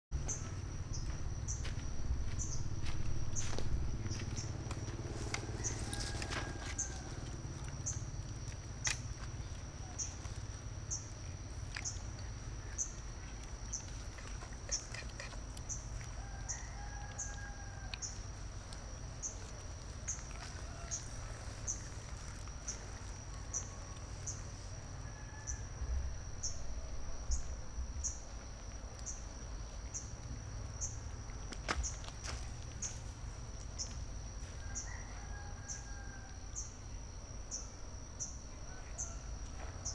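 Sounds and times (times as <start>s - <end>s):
high-pitched insect drone: 0.2s - 28.4s
distant rooster crowing: 4.2s - 8.0s, 16.0s - 18.5s, 20.1s - 27.0s, 34.4s - 36.9s, 38.3s - 39.9s.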